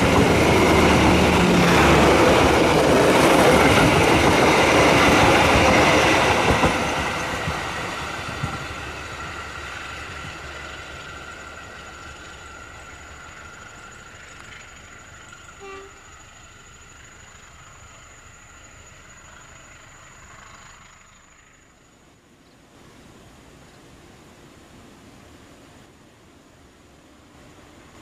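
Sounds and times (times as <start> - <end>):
train rumble and wheels on rails: 0.0 - 28.0
train horn toot: 15.5 - 16.2.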